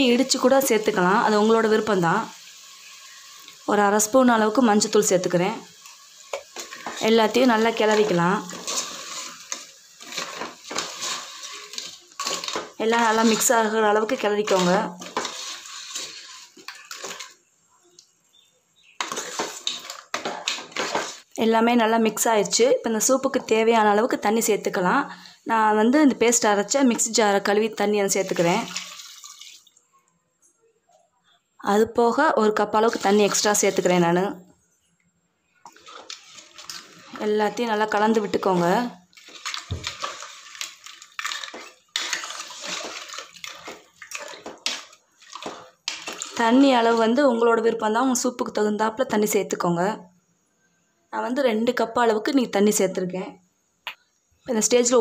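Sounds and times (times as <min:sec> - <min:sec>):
soup sloshing: 0:05.6 - 0:17.5, 0:18.3 - 0:21.4, 0:28.1 - 0:29.8, 0:32.7 - 0:34.2, 0:35.6 - 0:47.0
steel ladle scraping a pot: 0:06.2 - 0:17.4, 0:19.0 - 0:21.3, 0:32.7 - 0:34.1, 0:35.6 - 0:46.7.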